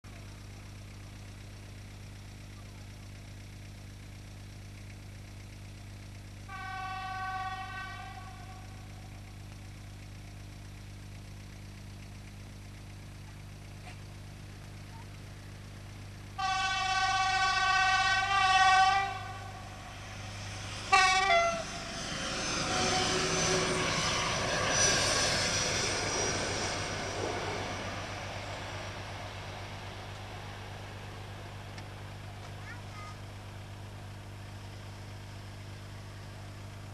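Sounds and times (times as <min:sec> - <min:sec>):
rumble and clatter of passing train: 0:06.4 - 0:10.8, 0:13.2 - 0:34.4
locomotive horn blasts: 0:06.5 - 0:08.8, 0:16.4 - 0:19.9, 0:20.9 - 0:21.8.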